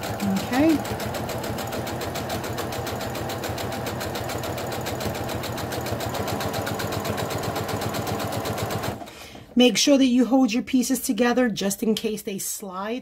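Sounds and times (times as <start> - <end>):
sewing machine stitching: 0.0 - 9.4.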